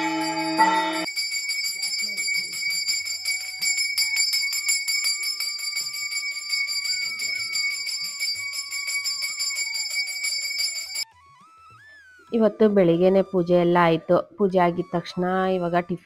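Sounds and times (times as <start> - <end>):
hand bell ringing: 0.0 - 11.0.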